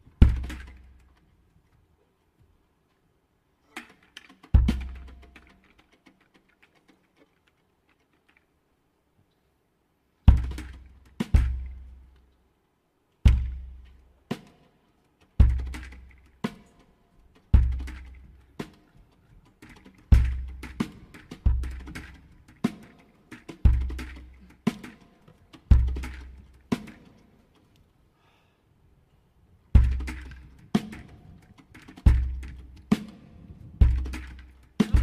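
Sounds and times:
deep drum strokes: 10.3 - 12.0, 13.3 - 14.5, 29.7 - 35.0.

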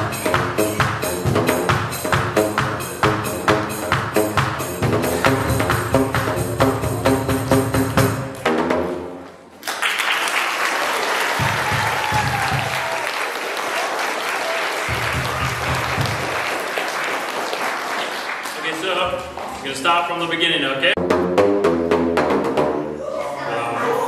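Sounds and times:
booming pipe notes: 0.0 - 9.2, 14.9 - 16.4, 21.0 - 23.0
children applauding: 9.6 - 19.6.

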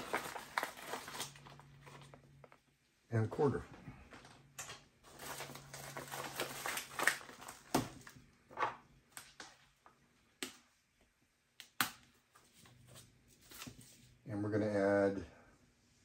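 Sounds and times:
plastic bag crinkling: 0.0 - 2.6, 5.0 - 8.2.

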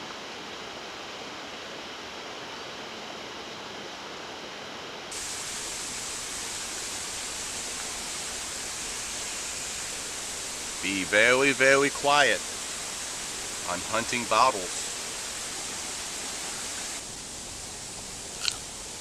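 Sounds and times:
outdoor background hiss: 0.0 - 19.0.

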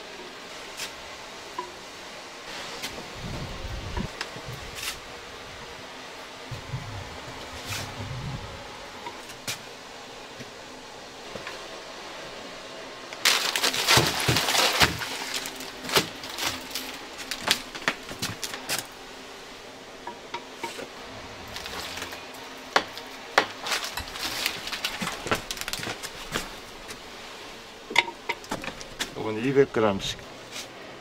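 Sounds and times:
rustling and scraping: 2.5 - 5.1, 6.5 - 9.7, 13.2 - 19.0, 20.6 - 29.2, 30.4 - 30.8.

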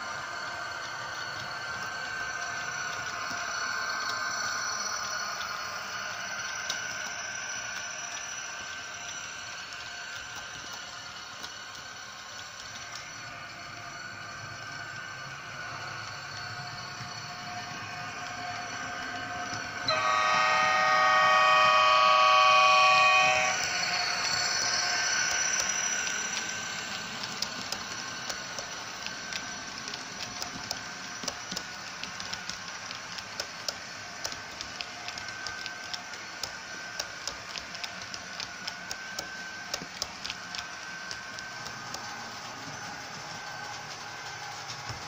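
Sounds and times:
model train horn chord: 19.9 - 23.7
wheels clicking over rail joints: 23.6 - 44.0.

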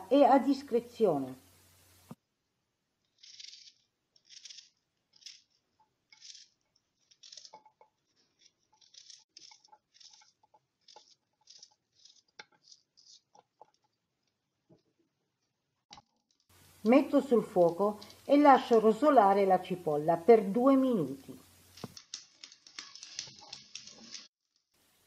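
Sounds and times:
onion scraped into pot: 3.1 - 13.7.

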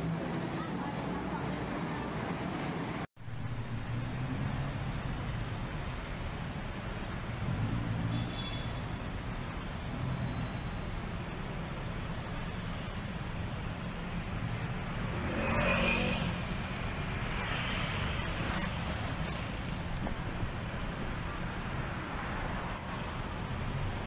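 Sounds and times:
traffic engines humming: 0.0 - 24.0.

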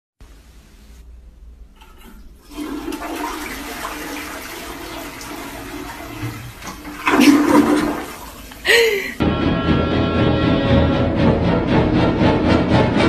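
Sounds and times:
toilet flushing: 1.8 - 9.2.

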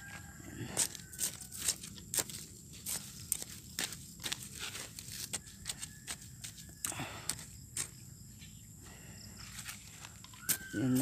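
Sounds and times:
dry grass crunching and crackling: 0.0 - 6.8
scraping rustle: 0.1 - 6.7.

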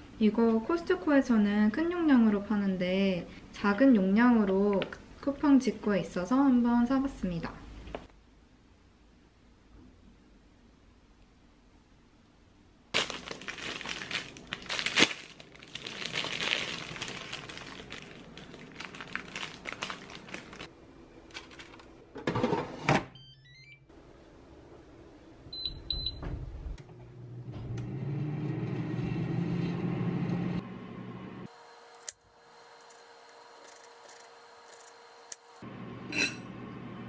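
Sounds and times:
rustling and handling: 21.3 - 22.0.

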